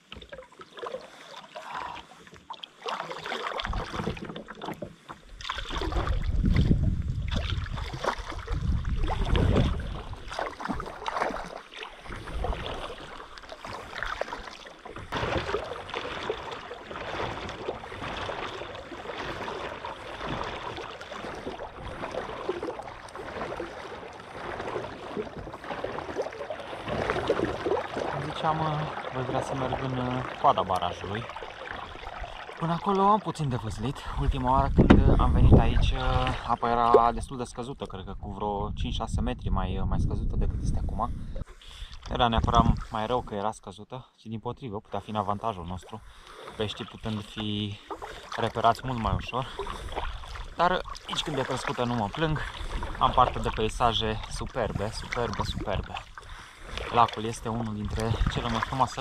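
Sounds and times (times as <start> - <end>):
kayak paddle splashing in water: 0.0 - 37.5, 46.0 - 59.0.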